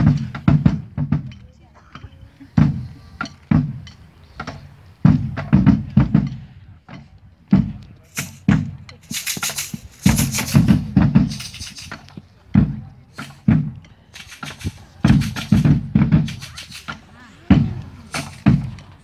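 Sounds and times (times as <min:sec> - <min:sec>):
large drums beating: 0:00.0 - 0:19.0.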